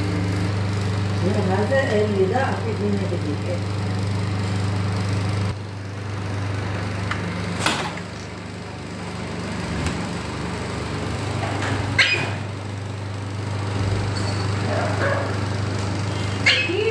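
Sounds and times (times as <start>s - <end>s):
steady low machine hum: 0.0s - 16.9s.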